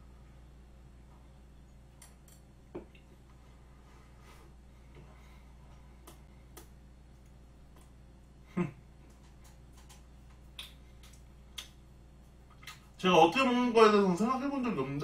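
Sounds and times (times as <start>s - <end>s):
low room hum: 0.0s - 15.0s
lip smacks and mouth clicks: 9.0s - 13.0s.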